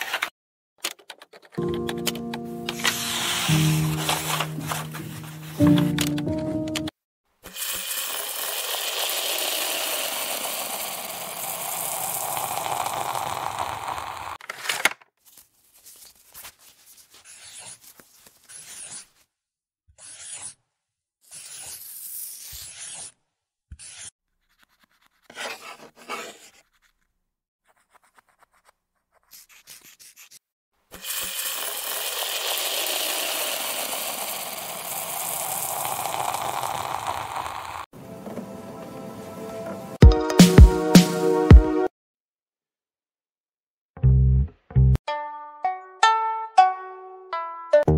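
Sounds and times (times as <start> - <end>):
pen scratching on paper: 2.7 - 5.7, 15.9 - 19.2, 20.0 - 20.6, 21.2 - 36.7.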